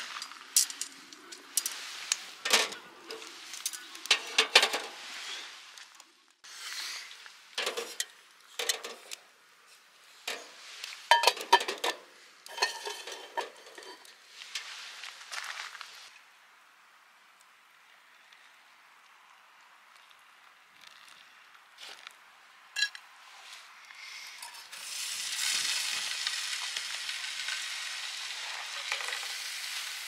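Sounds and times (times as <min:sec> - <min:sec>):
metal cookware clinking and knocking: 0:07.6 - 0:09.1, 0:11.1 - 0:14.1.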